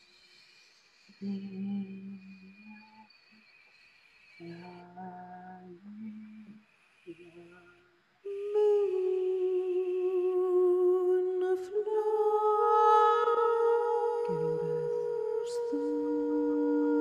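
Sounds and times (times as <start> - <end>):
woman humming: 4.4 - 17.0.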